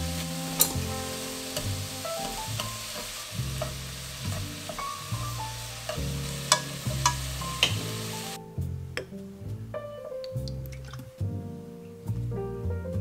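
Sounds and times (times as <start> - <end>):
vegetables sizzling in a frying pan: 0.0 - 8.4
chopsticks clicking against pan: 5.8 - 7.8.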